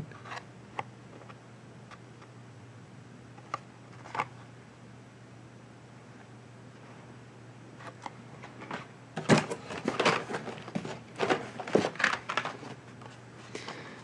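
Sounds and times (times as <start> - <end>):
cardboard and plastic rustling: 7.8 - 13.9.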